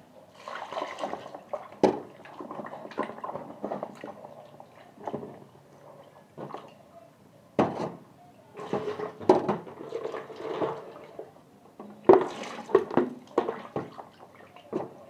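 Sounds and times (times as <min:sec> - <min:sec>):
water splashing in plastic jug: 0:00.4 - 0:05.4, 0:08.6 - 0:11.3, 0:12.0 - 0:15.0.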